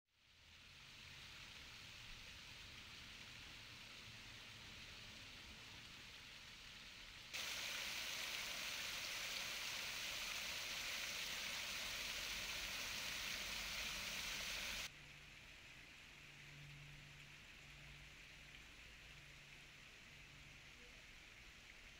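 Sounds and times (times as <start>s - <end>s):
faint steady hiss: 0.1s - 21.9s
water splashing into stone basin: 7.4s - 14.9s.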